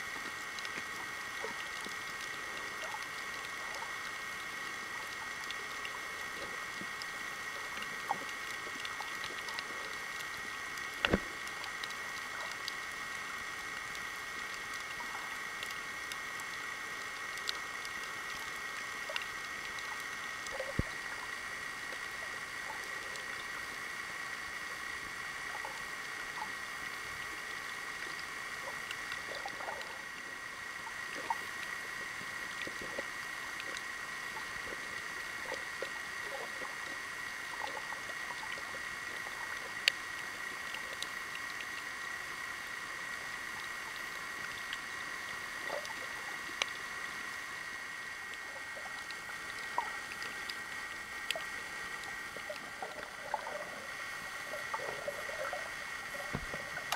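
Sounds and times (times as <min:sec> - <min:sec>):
underwater hiss: 0:00.0 - 0:56.9
underwater clicks and pops: 0:11.0 - 0:11.9, 0:56.2 - 0:56.9.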